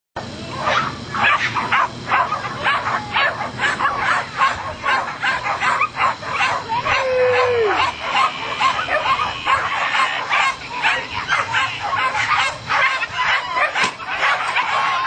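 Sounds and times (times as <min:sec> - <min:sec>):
dogs barking rapidly: 0:00.5 - 0:15.0
dog whining: 0:05.7 - 0:15.0.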